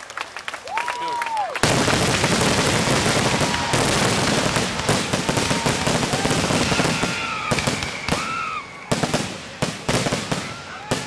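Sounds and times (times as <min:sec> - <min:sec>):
firework bursts and bangs: 0:01.6 - 0:11.0
firework whistling: 0:01.6 - 0:11.0.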